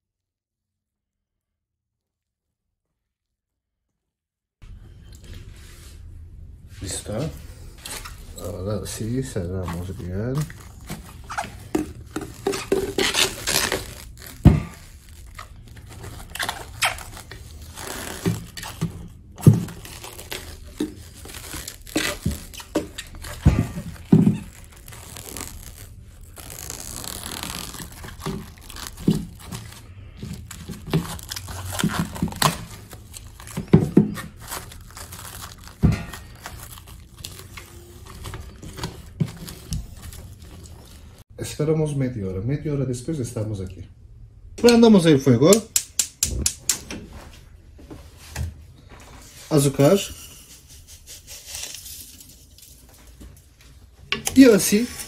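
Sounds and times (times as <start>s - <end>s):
cling film crinkling: 7.7s - 41.2s.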